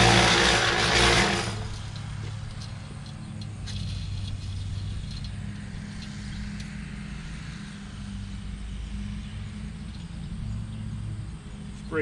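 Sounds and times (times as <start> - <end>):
cement mixer motor hum: 0.0 - 2.1.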